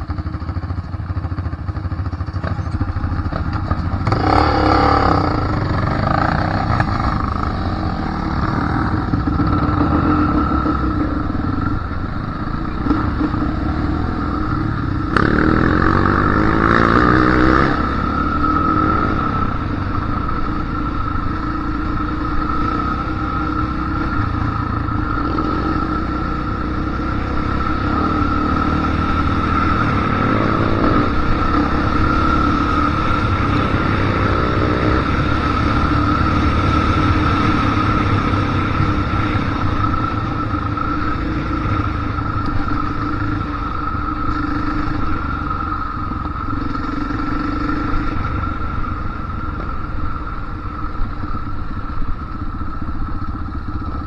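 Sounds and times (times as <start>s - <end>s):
dirt bike engine revving: 4.0s - 11.4s, 12.7s - 20.0s.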